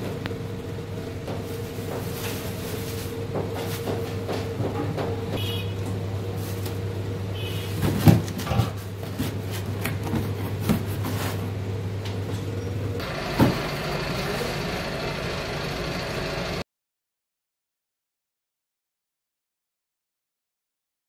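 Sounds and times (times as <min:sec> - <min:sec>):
machinery low hum: 0:00.0 - 0:16.6.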